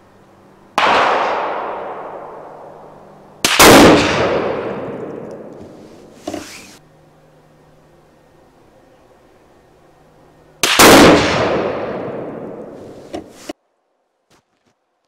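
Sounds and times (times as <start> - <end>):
rifle shot with echo: 0.8 - 5.6, 10.6 - 12.8.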